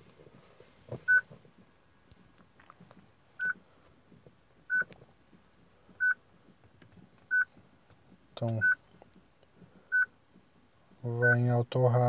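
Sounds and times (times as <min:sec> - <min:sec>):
car radio beeping: 0:01.0 - 0:01.3, 0:03.4 - 0:03.6, 0:04.6 - 0:05.0, 0:06.0 - 0:06.2, 0:07.3 - 0:07.5, 0:08.4 - 0:08.8, 0:09.9 - 0:10.2, 0:11.2 - 0:11.5.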